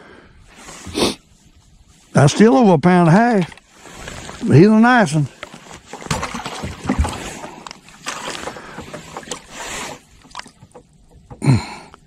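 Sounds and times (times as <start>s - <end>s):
knocks and clatter on boat: 5.3s - 12.0s.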